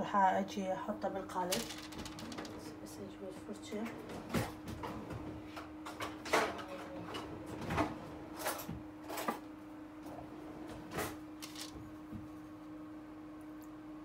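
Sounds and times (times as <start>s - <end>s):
utensils and containers clattering: 1.5s - 2.8s, 11.0s - 11.8s.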